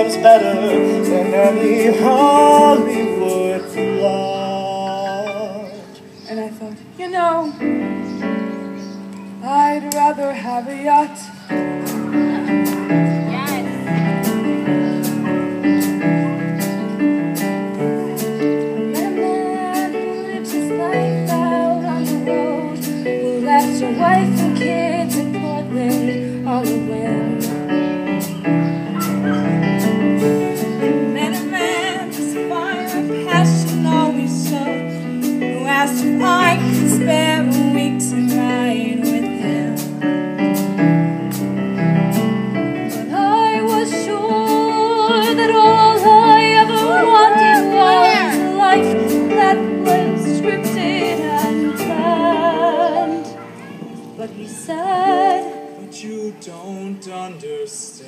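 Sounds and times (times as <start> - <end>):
keyboard chords: 0.0 - 56.4
voices holding a note with vibrato: 47.3 - 48.7.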